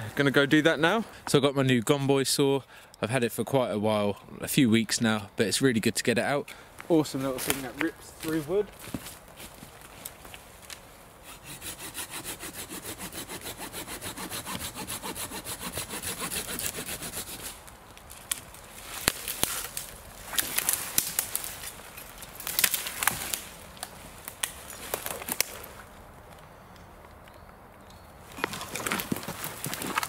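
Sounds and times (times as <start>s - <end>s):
hand saw cutting wood: 11.2s - 17.6s
wood cracking and snapping: 17.9s - 26.4s, 27.2s - 30.0s.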